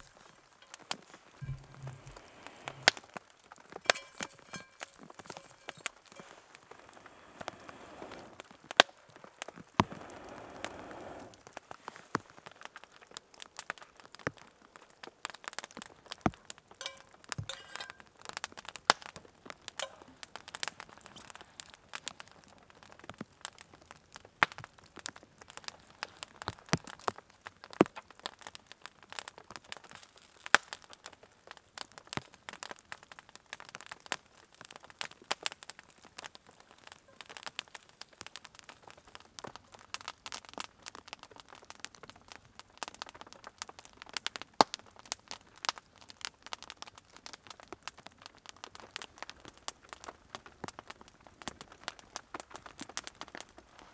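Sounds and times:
person blowing on embers: 0.0 - 3.2, 3.8 - 12.4
campfire crackling and popping: 0.0 - 53.9.

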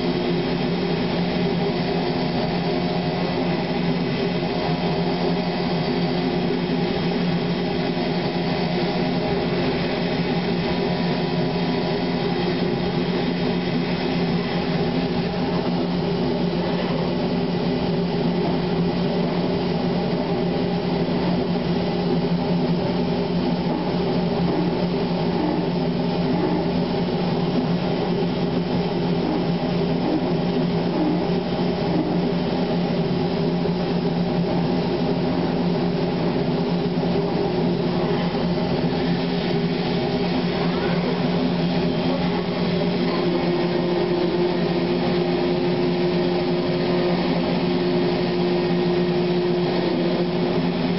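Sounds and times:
industrial machinery humming: 0.0 - 50.9.

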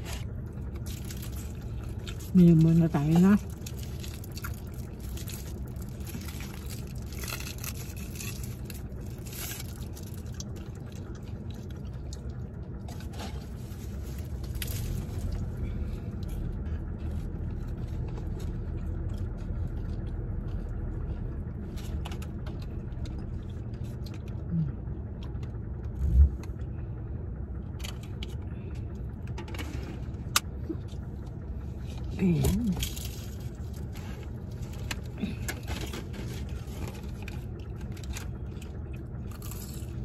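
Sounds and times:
crisp eating crunches: 0.0 - 15.5, 32.6 - 40.0
car cabin rumble: 0.0 - 40.0.

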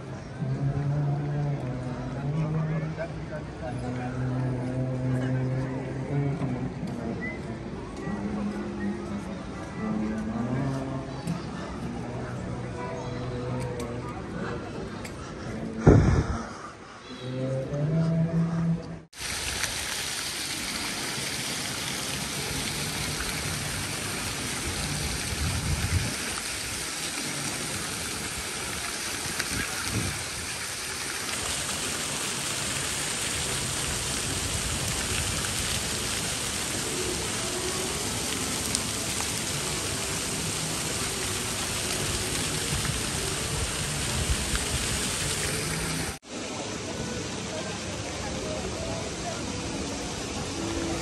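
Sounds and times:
fountain water splashing: 19.2 - 51.0.

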